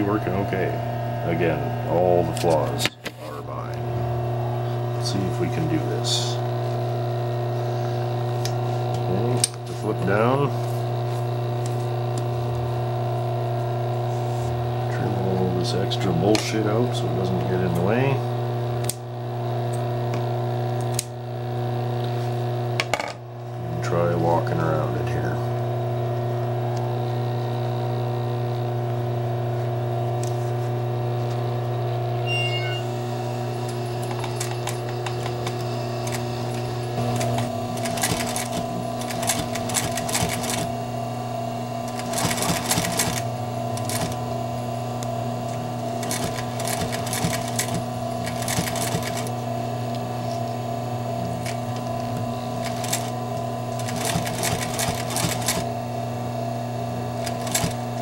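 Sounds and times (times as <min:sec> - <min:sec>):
sewing machine hum: 0:03.3 - 0:15.7, 0:30.0 - 0:58.0
sewing machine stitching clatter: 0:37.2 - 0:40.7, 0:41.9 - 0:44.2, 0:46.0 - 0:49.3, 0:52.6 - 0:53.2, 0:53.8 - 0:55.7, 0:57.2 - 0:57.8.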